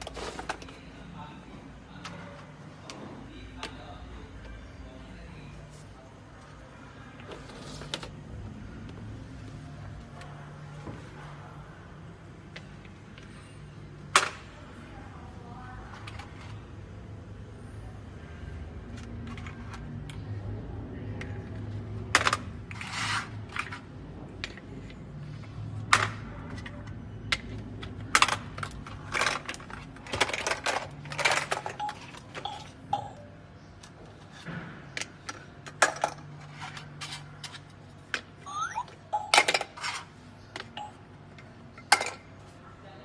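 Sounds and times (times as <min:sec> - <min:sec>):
plastic blocks clicking and knocking: 0:25.9 - 0:32.7.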